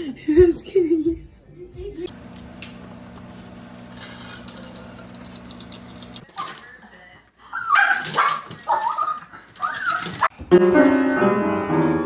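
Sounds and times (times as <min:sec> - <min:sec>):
steady low hum: 0:02.1 - 0:06.2
kitchen tap trickling: 0:02.1 - 0:06.3
dog yelping and whining: 0:07.5 - 0:10.3.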